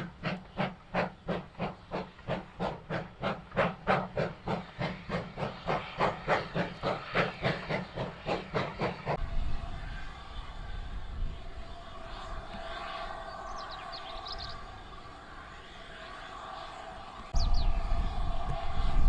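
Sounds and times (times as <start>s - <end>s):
steam locomotive exhaust beats: 0.0s - 19.0s.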